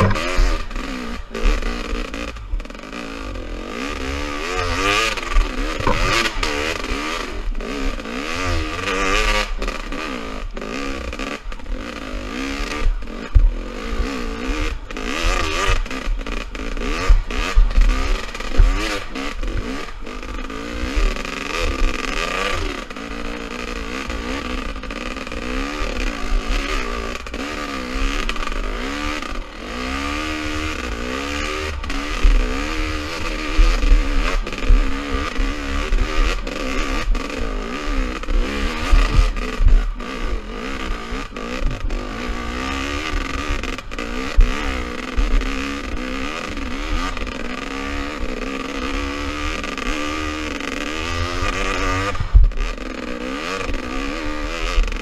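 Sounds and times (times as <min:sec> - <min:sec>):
bike knocks and rattles: 0:00.0 - 0:00.7, 0:05.0 - 0:06.8, 0:14.4 - 0:22.7
dirt bike engine revving: 0:00.0 - 0:55.0
wind rumble on microphone: 0:38.8 - 0:40.0, 0:51.1 - 0:52.7.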